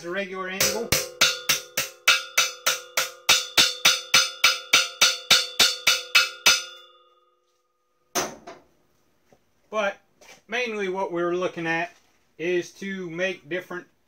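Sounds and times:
hammer on metal: 0:00.6 - 0:07.0.

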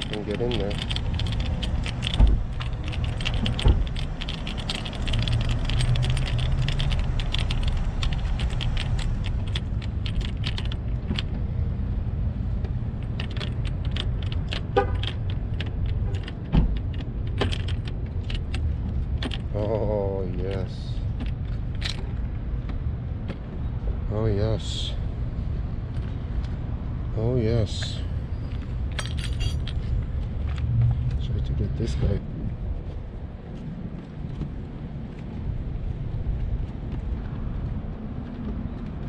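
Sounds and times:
steady low rumble: 0:00.0 - 0:39.0.

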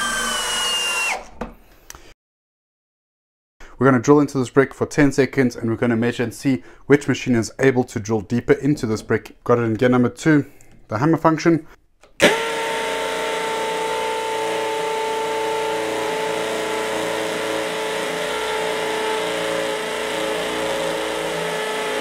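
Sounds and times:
impact drill hammering into brick: 0:12.2 - 0:22.0.

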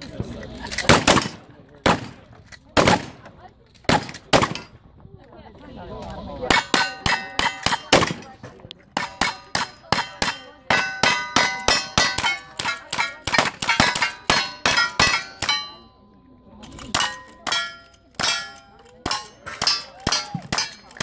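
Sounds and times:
steel plate targets ringing: 0:06.5 - 0:07.9, 0:09.0 - 0:16.1, 0:16.8 - 0:21.0.

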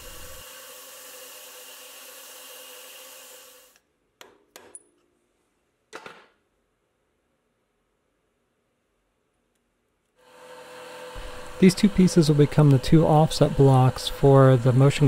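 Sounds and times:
milling machine hissing: 0:00.0 - 0:03.8, 0:10.3 - 0:15.0.

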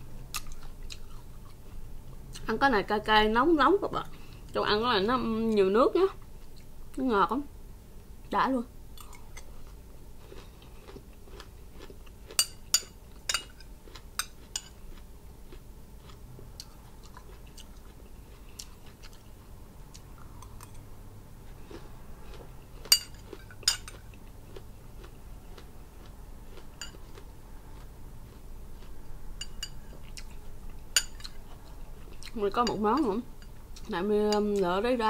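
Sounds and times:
chewing and biting seeds: 0:09.0 - 0:12.4, 0:13.4 - 0:20.8, 0:21.5 - 0:32.4.

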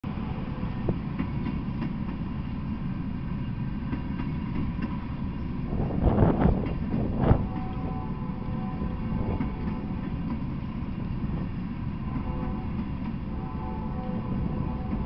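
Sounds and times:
train wheels rumbling on rails: 0:00.0 - 0:15.0
train wheel clacks: 0:00.9 - 0:02.3, 0:03.7 - 0:07.9, 0:09.0 - 0:13.2.

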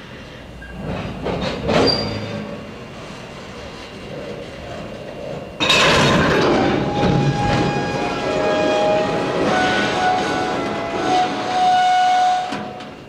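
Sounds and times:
wheels squealing against rail: 0:00.6 - 0:02.6, 0:06.3 - 0:13.0
freight cars rolling on steel wheels: 0:00.6 - 0:13.0
loud clatter: 0:05.6 - 0:12.9.

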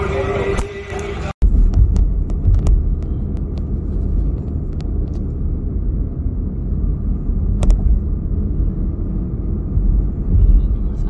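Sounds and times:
road and engine rumble: 0:00.0 - 0:11.0.

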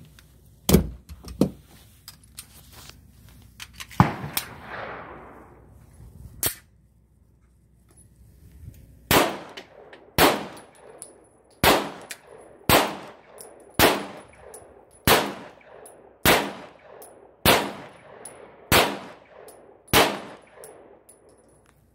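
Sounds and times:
pistol shots with echo: 0:04.0 - 0:05.6, 0:09.1 - 0:21.2.

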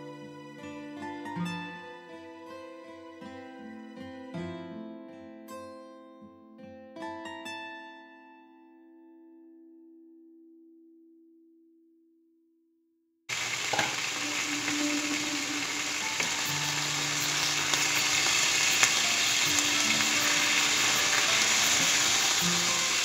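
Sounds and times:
chicken sizzling in hot oil: 0:13.3 - 0:23.0
wooden spoon knocking on pan: 0:13.7 - 0:14.0.

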